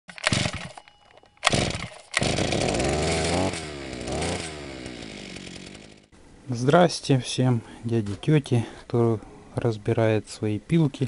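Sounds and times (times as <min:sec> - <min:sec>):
chainsaw revving: 0:00.2 - 0:00.7, 0:01.4 - 0:06.1.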